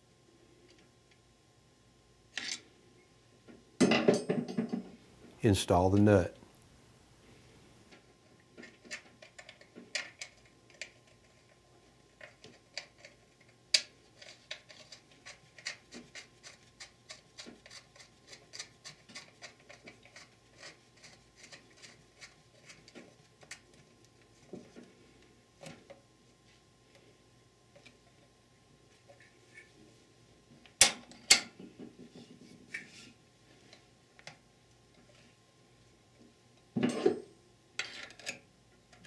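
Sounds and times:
small metal clicks and scrapes: 0:08.6 - 0:11.6, 0:12.2 - 0:24.2, 0:37.8 - 0:39.0.

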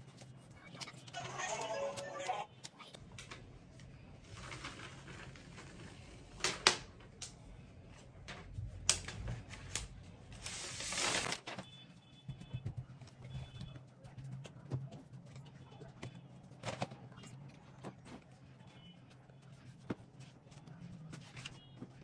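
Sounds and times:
cardboard and paper rustling: 0:09.1 - 0:11.7
paper wrap rustle: 0:09.5 - 0:11.6.

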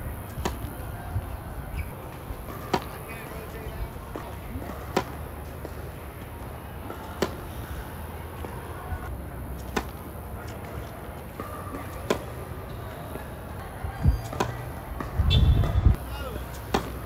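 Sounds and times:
tennis racket striking ball: 0:00.3 - 0:00.8, 0:01.8 - 0:07.8, 0:09.5 - 0:13.3, 0:14.1 - 0:15.8, 0:16.4 - 0:17.0.

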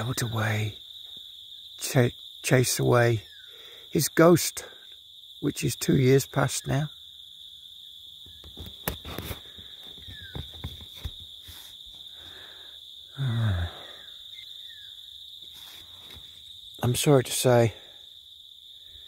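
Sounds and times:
crickets chirring: 0:00.0 - 0:19.0
man sighing: 0:12.2 - 0:14.1.

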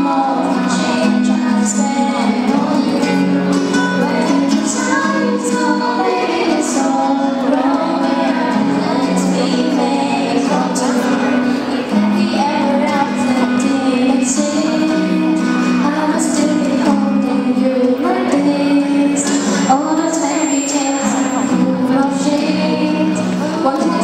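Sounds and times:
girl singing into microphone: 0:00.0 - 0:24.0
strummed acoustic guitar: 0:00.0 - 0:24.0.

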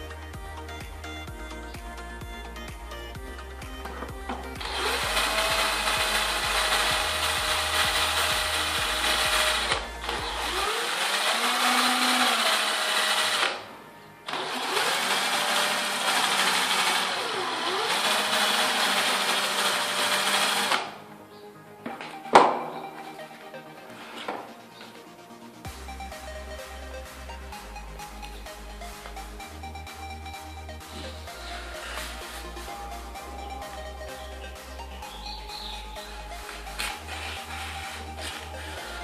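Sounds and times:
drill motor whine: 0:04.6 - 0:13.7, 0:14.3 - 0:21.0, 0:35.6 - 0:39.0.

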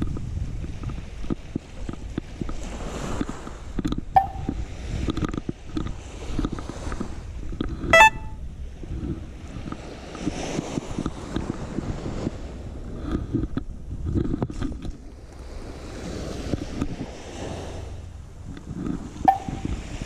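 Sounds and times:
wind buffeting microphone: 0:00.0 - 0:20.0
sharp pitched pings: 0:04.2 - 0:04.6, 0:08.0 - 0:08.4, 0:19.3 - 0:19.8.

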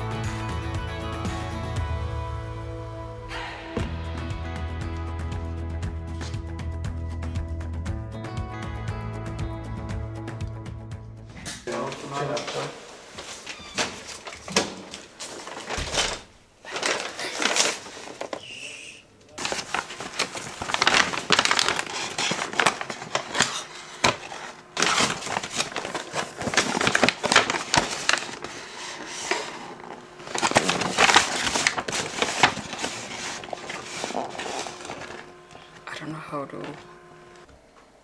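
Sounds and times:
paper bag rustling and crinkling: 0:11.7 - 0:18.7, 0:19.3 - 0:36.9
cardboard boxes opened: 0:16.7 - 0:18.6, 0:19.4 - 0:35.3.

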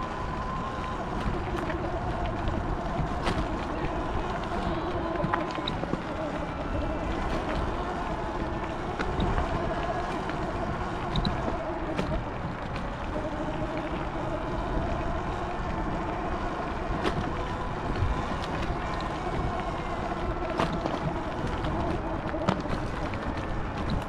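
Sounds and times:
electric motor whine: 0:00.0 - 0:24.0
tyres rumbling on gravel: 0:00.0 - 0:24.0.

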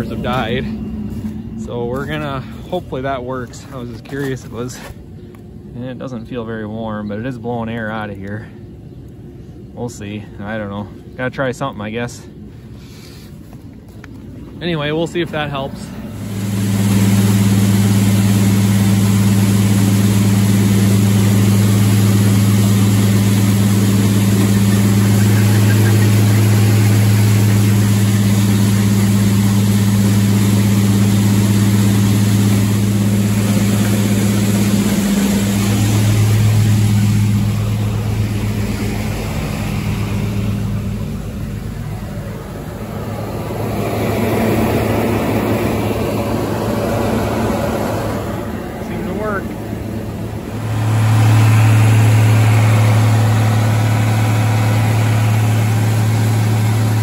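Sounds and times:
fan and motor low hum: 0:00.0 - 0:57.0
heater rushing noise: 0:00.0 - 0:57.0
rushing air: 0:15.6 - 0:57.0.

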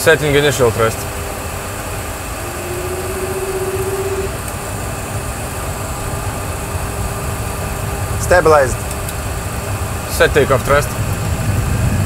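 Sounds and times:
jet engine spooling up: 0:02.3 - 0:04.9.

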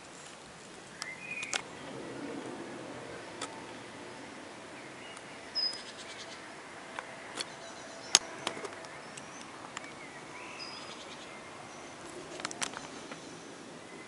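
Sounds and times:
sharp clicks: 0:01.0 - 0:01.7, 0:06.9 - 0:10.0, 0:12.0 - 0:13.2
short high bird calls: 0:04.7 - 0:06.5.

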